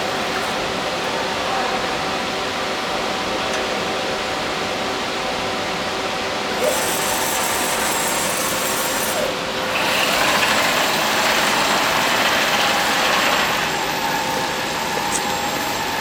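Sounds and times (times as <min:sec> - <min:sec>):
drilling machine running: 0:06.6 - 0:16.0.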